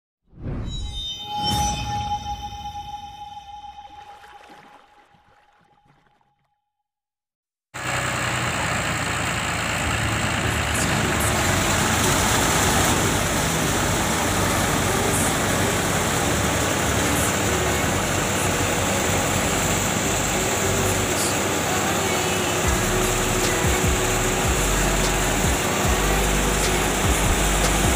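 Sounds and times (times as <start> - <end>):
diesel tractor engine under load: 7.8 - 27.9.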